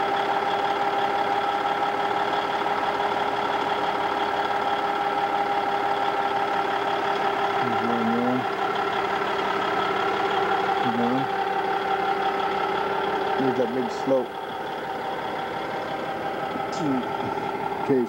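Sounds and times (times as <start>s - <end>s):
bulldozer diesel engine idling: 0.0s - 18.0s.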